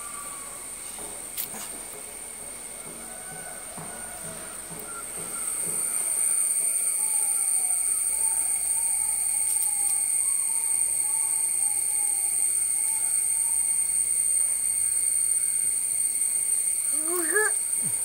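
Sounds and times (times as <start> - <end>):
high-pitched insect drone: 0.0 - 18.0.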